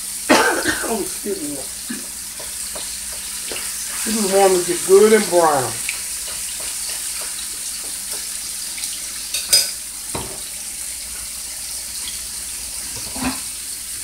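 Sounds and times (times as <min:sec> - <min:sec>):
meat sizzling in a skillet: 0:00.0 - 0:14.0.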